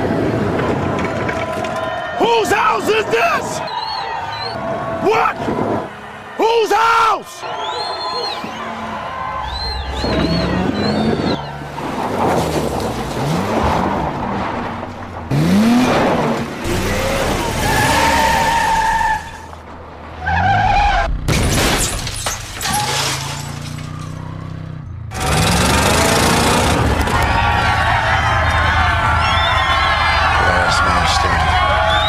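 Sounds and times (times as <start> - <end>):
car engines revving: 3.4 - 21.4, 23.0 - 32.0
tyres squealing: 6.6 - 12.6, 16.7 - 19.6
crunching metal crashes: 11.8 - 19.9, 21.2 - 24.2
breaking glass: 21.3 - 24.2.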